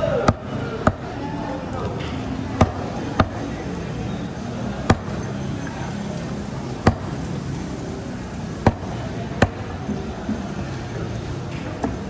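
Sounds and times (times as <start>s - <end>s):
cleaver chopping on wooden block: 0.2s - 1.1s, 2.6s - 3.4s, 4.8s - 5.2s, 6.8s - 7.2s, 8.6s - 9.7s.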